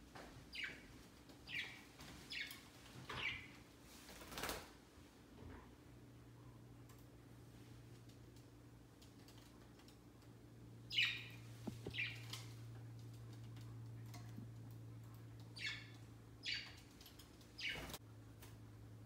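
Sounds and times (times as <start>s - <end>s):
budgerigars chirping: 10.9s - 12.2s, 15.6s - 16.8s.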